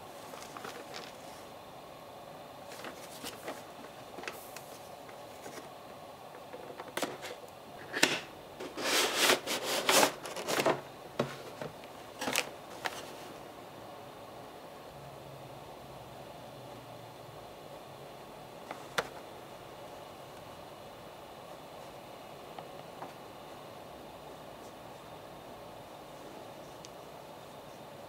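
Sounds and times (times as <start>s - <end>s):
cardboard and plastic crinkling: 0.1s - 1.5s, 2.6s - 5.7s, 6.4s - 13.4s.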